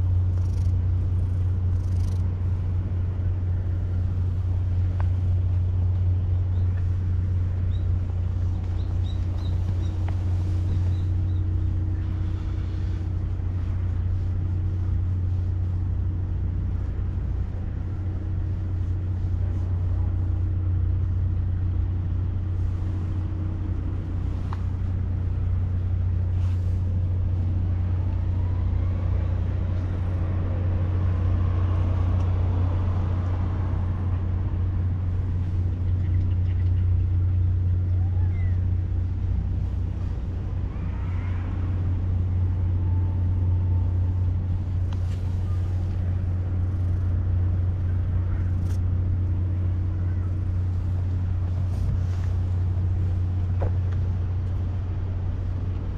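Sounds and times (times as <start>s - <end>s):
faint steady tone: 0.0s - 55.9s
steady low hum: 0.0s - 55.9s.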